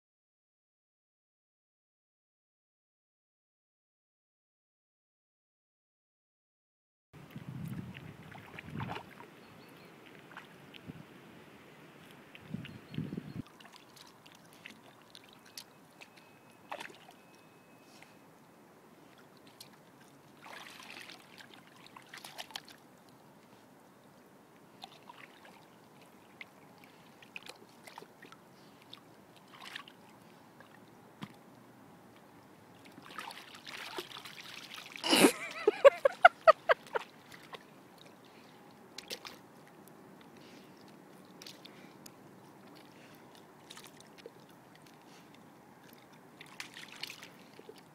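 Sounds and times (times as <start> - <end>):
water sloshing and splashing: 7.3 - 11.0, 11.9 - 18.2, 19.0 - 23.2, 24.7 - 31.4, 32.2 - 47.9.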